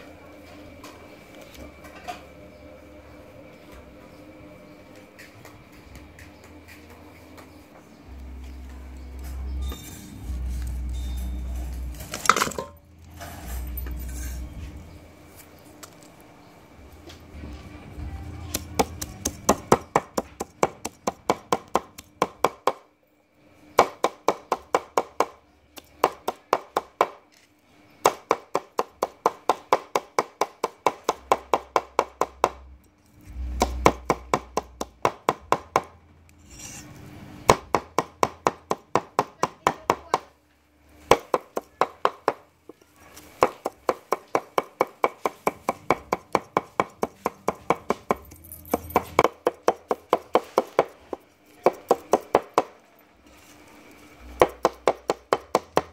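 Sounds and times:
cleaver chopping on wooden board: 18.5s - 22.8s, 23.8s - 25.4s, 33.6s - 35.9s, 41.1s - 42.4s, 43.4s - 52.8s, 54.4s - 55.9s.

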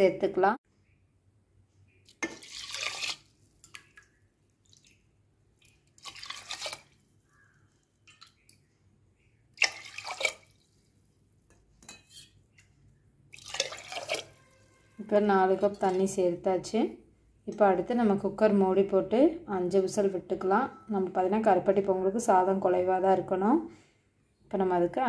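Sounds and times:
water pouring into a pot: 2.1s - 7.2s, 9.6s - 11.0s, 13.3s - 16.1s.

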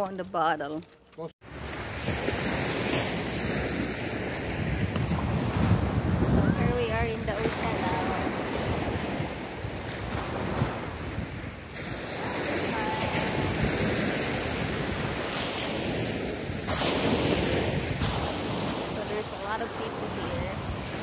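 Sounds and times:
small waves breaking on shore: 1.4s - 21.0s
wind buffeting microphone: 1.6s - 21.0s.

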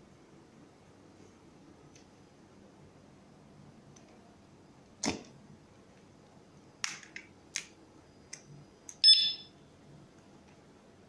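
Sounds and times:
short electronic beep: 9.0s - 9.6s.

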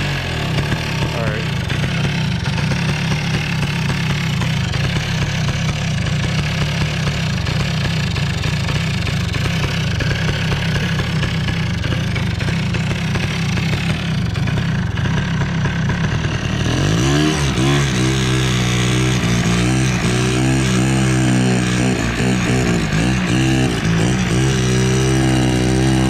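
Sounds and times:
two-stroke engine running: 0.0s - 26.0s.

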